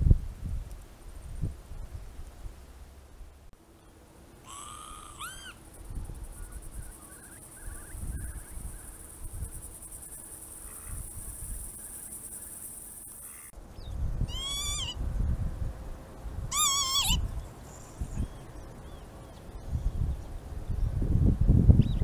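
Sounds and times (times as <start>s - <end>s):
wind rumble on microphone: 0.0s - 3.5s, 5.8s - 11.9s, 13.6s - 22.0s
lapwing calls: 4.4s - 5.6s, 6.3s - 9.1s, 11.8s - 13.6s, 14.3s - 15.0s, 16.5s - 18.6s.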